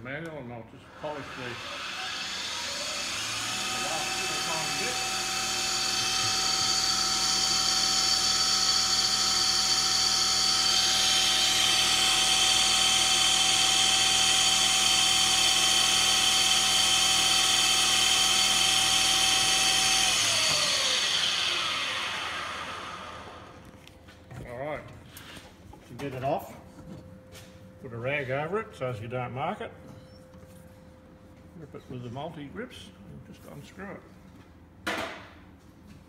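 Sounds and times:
lathe motor whine: 0:00.8 - 0:23.9.

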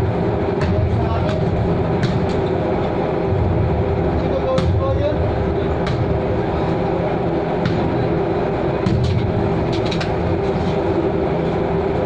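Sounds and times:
ship machinery drone: 0:00.0 - 0:12.0
basketball bouncing on deck: 0:00.6 - 0:02.4.

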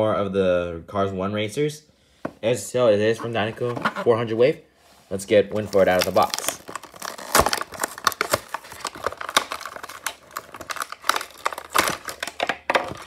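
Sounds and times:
plastic packaging crinkling: 0:05.5 - 0:13.0.

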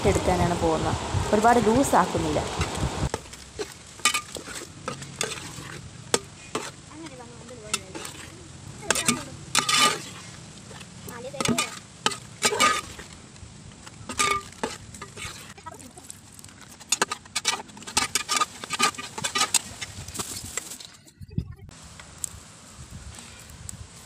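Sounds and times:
metal ladle scraping a pot: 0:02.6 - 0:06.8, 0:07.7 - 0:13.2, 0:14.0 - 0:15.7, 0:16.6 - 0:21.0.

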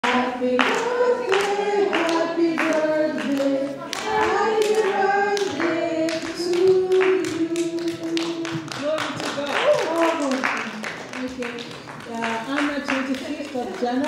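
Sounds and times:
group of voices singing: 0:00.0 - 0:08.8
hand claps: 0:00.0 - 0:14.0.

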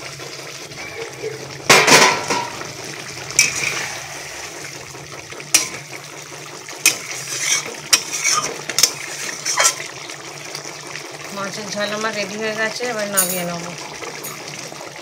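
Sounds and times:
gravy simmering hiss: 0:00.0 - 0:15.0
metal spatula scraping a pan: 0:03.4 - 0:04.2, 0:05.5 - 0:06.0, 0:06.8 - 0:10.0.

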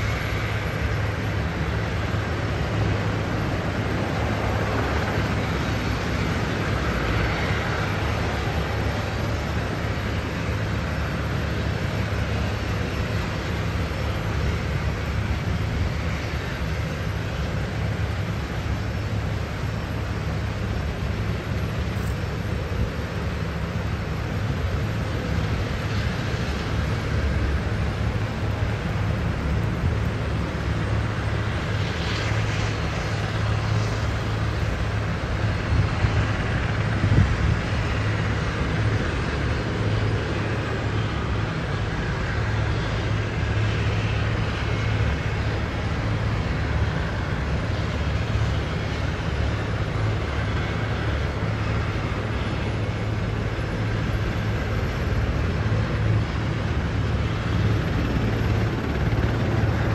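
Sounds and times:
helicopter engine and rotor hum: 0:00.0 - 0:59.9.

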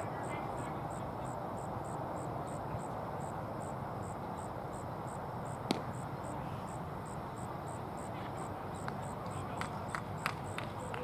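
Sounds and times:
steady outdoor hum: 0:00.0 - 0:11.0
insect chirping: 0:00.1 - 0:09.2
baseball smacking into mitt: 0:05.7 - 0:06.0.

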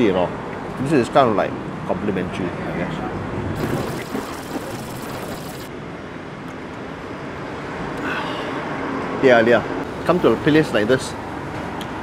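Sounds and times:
road traffic noise: 0:05.7 - 0:12.0.

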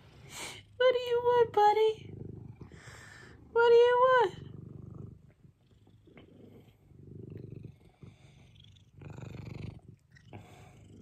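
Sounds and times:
cat purring: 0:00.0 - 0:11.0.

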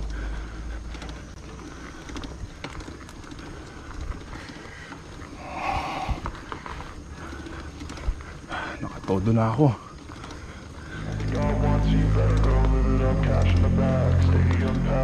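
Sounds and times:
bicycle tyre and drivetrain noise: 0:00.0 - 0:15.0
sharp clicks: 0:10.0 - 0:15.0.

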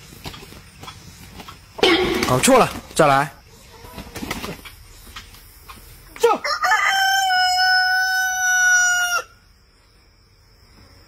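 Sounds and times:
rooster crowing: 0:06.4 - 0:09.4.

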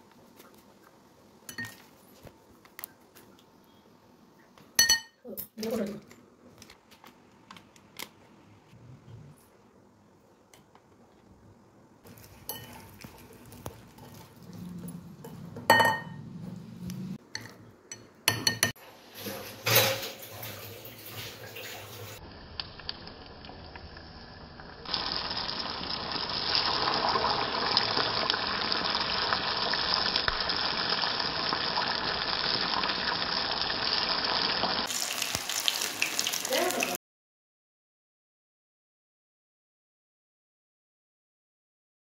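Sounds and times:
hot oil sizzling: 0:18.8 - 0:37.0.

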